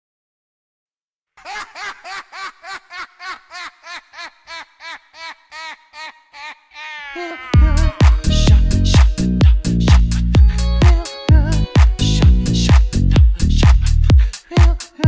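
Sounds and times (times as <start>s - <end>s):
repeated sampled laugh: 1.4s - 7.9s.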